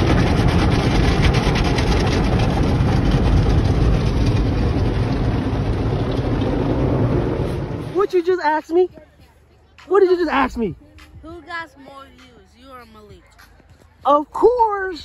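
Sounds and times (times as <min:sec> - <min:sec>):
car wash brushes and water spray: 0:00.0 - 0:08.9.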